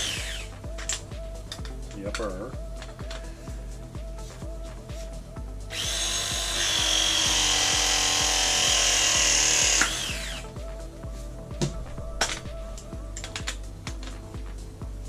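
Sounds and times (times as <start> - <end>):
press tool motor whining: 5.7 - 10.5.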